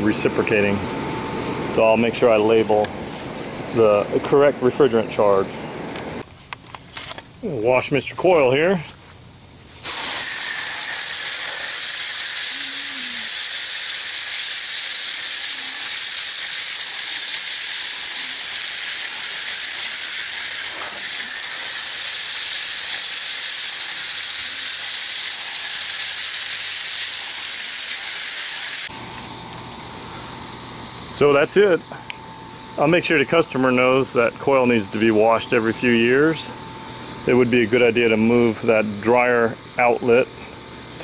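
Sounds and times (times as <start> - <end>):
hose spray hissing: 9.7 - 28.9.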